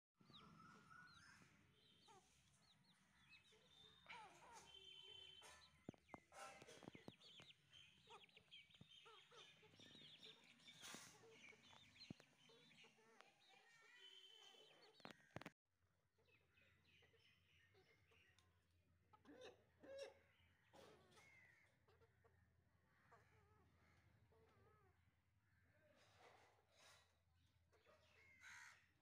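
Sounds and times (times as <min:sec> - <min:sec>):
chicks peeping: 0:01.8 - 0:13.1
chickens clucking: 0:02.0 - 0:13.3.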